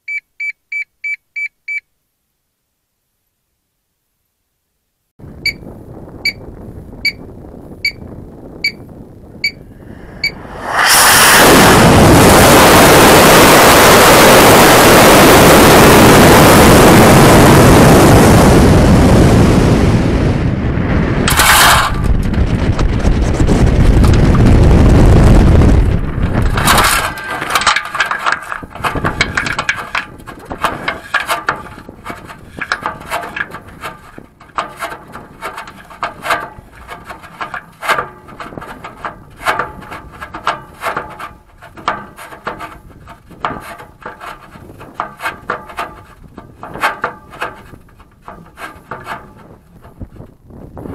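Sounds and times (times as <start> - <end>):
rocket motor exhaust rushing: 9.6 - 43.0
short sharp burst: 9.9 - 13.0
clicking rattling and scraping: 21.2 - 24.5, 26.1 - 50.4.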